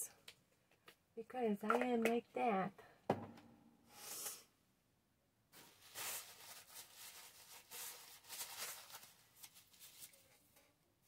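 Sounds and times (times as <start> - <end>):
paper rustling: 5.6 - 10.7.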